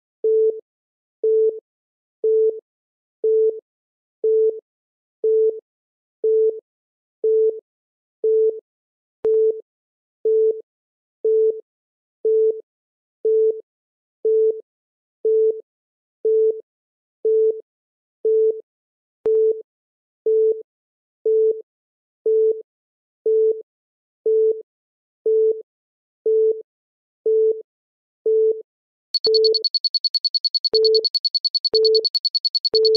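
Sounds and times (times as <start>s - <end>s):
countdown timer beeping: 29.2s - 32.9s.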